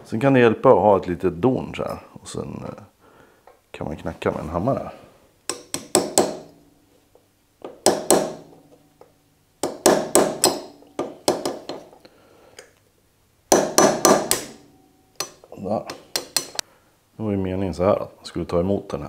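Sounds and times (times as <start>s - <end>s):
hammer tapping metal: 5.5s - 6.7s, 7.6s - 12.0s, 13.5s - 16.6s.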